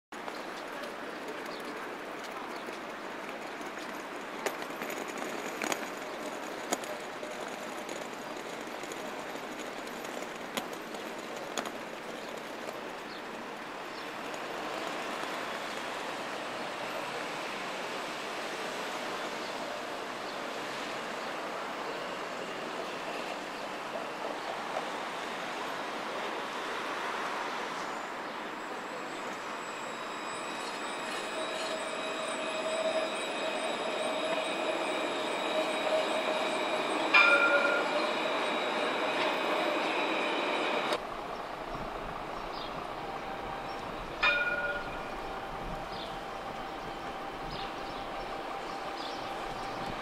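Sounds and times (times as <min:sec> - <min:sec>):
tram rolling along track: 0:00.1 - 0:50.0
passing road traffic: 0:24.0 - 0:50.0
ringing bell strike: 0:29.7 - 0:41.0, 0:42.4 - 0:50.0.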